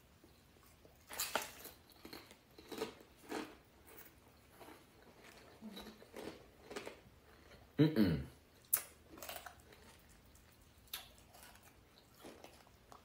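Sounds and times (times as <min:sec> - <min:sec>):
chips being chewed: 0:00.6 - 0:07.8, 0:08.6 - 0:13.0.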